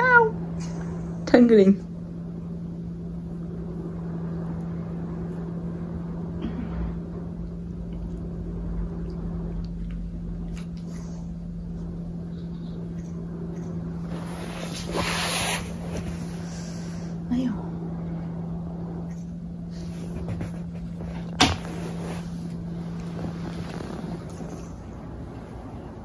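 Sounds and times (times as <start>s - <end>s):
steady low hum: 0.0s - 26.0s
cat grooming and licking fur: 0.5s - 26.0s
brushing rustle: 13.9s - 17.2s, 19.6s - 25.7s.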